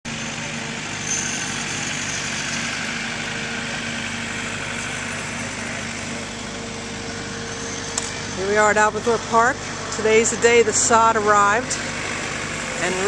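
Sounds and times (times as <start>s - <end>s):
engine idling: 0.1s - 13.0s.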